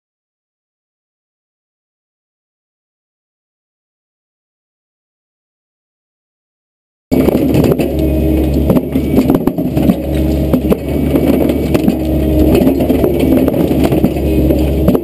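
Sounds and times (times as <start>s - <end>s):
concrete cracking and clattering: 7.1s - 15.0s
low machine drone: 7.1s - 15.0s.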